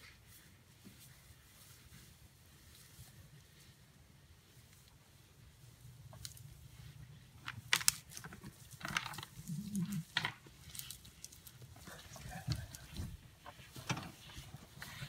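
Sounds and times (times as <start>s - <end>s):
rustling in dry grass: 0.0s - 15.0s.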